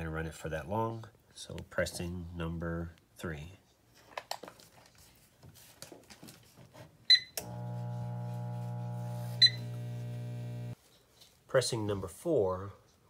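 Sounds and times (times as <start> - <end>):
microwave electrical hum: 7.4 - 10.8
microwave key beep: 9.4 - 9.8.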